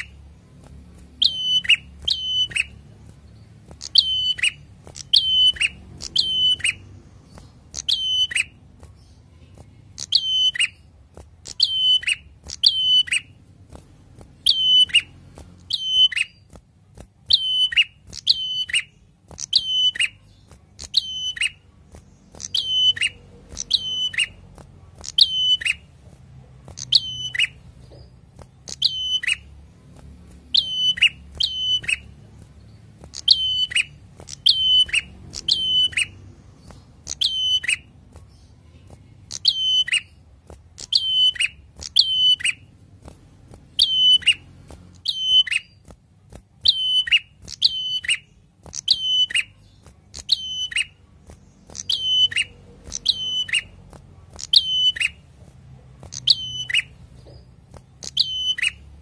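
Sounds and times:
bird singing sharp metallic notes: 1.2 - 13.4, 14.5 - 16.5, 17.3 - 24.4, 26.8 - 29.6, 30.5 - 40.2, 46.6 - 53.8, 54.4 - 55.2, 56.1 - 58.9.

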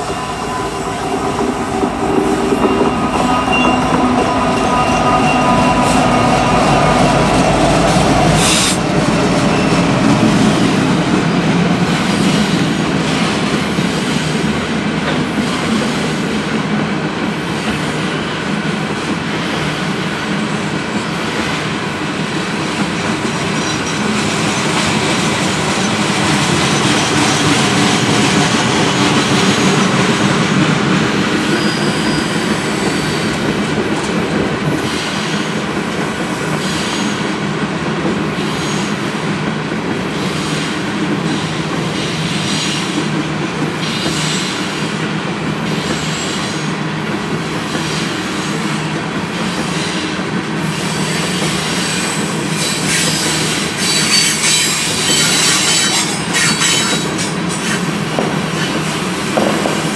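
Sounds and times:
high wheel squeals: 0.0 - 8.8, 31.3 - 33.6, 50.9 - 57.9
diesel locomotives running: 0.0 - 59.9
train wheels rumbling and clattering: 0.0 - 59.9.

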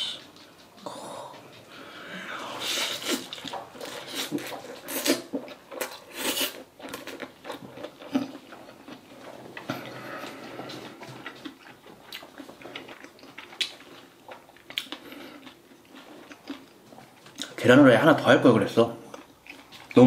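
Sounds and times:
chewing with wet mouth clicks: 3.0 - 17.6, 19.1 - 20.0.

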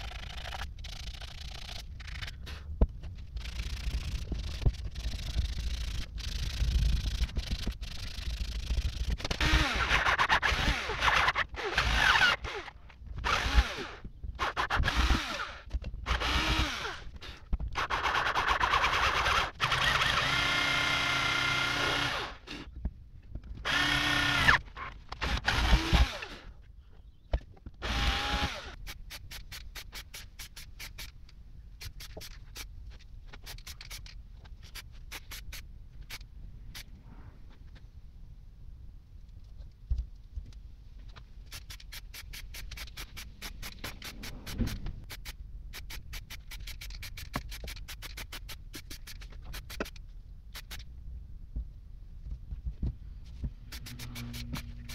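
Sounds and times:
power drill boring into metal: 23.7 - 24.6.

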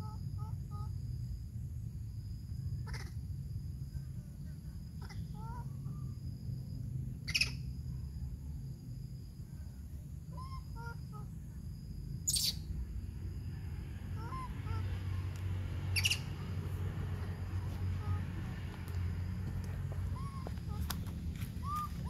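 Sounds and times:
baby monkey squeaking: 7.3 - 7.6, 12.3 - 12.6, 15.9 - 16.4, 20.1 - 20.9, 21.6 - 22.0
faint small chirps: 12.2 - 12.7.

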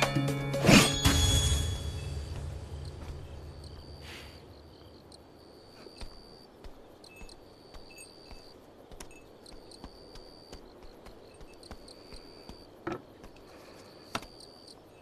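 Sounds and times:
crickets chirping: 1.0 - 15.0.

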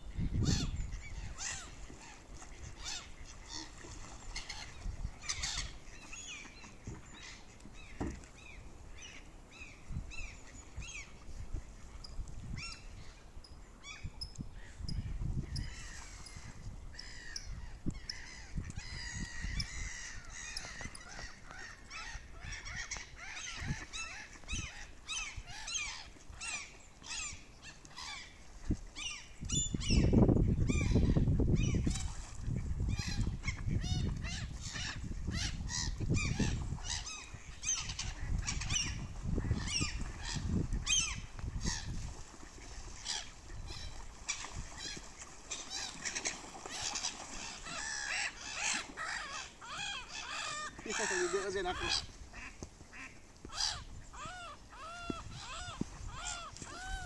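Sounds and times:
gulls and ducks calling: 0.4 - 9.2, 32.8 - 57.0.

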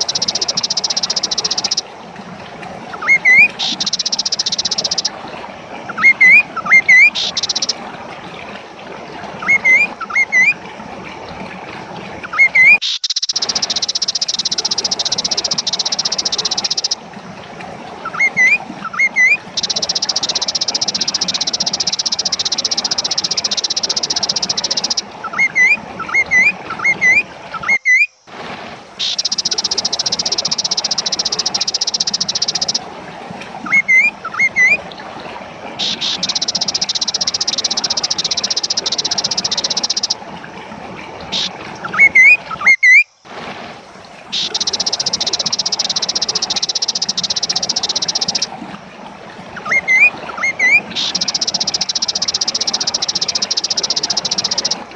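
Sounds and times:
bird song with buzzing trills: 0.0 - 1.9, 2.9 - 5.2, 5.9 - 7.8, 9.4 - 10.6, 12.2 - 17.0, 18.0 - 28.2, 29.0 - 32.8, 33.6 - 34.8, 35.8 - 40.2, 41.3 - 43.1, 44.3 - 48.5, 49.5 - 54.8.

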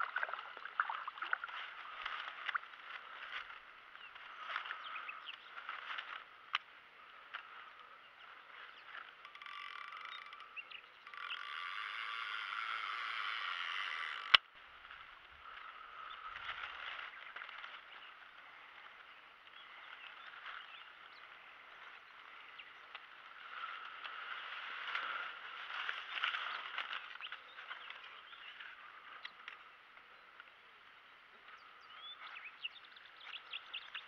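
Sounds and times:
frogs calling in chorus: 8.6 - 14.4.

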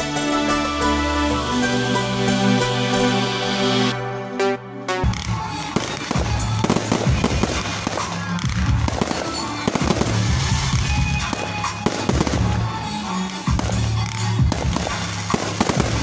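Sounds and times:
music playing: 0.0 - 16.0
fireworks bursting and crackling: 5.0 - 16.0.

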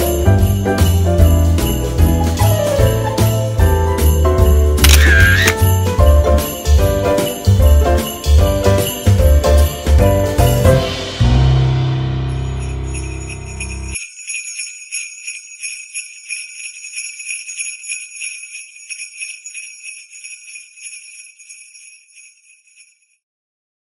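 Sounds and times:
sleigh bells jingling: 0.0 - 11.0, 12.3 - 23.2
music chord with deep bass: 11.0 - 13.6.

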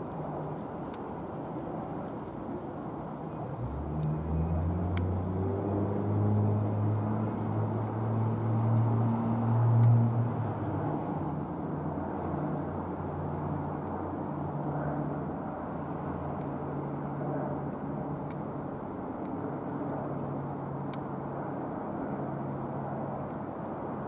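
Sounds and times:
turboprop plane droning: 0.0 - 24.0.

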